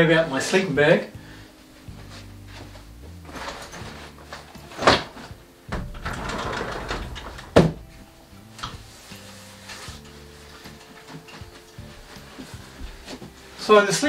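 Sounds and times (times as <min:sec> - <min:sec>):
sliding door rolling: 0:03.3 - 0:10.4
door clacking shut: 0:04.8 - 0:08.0.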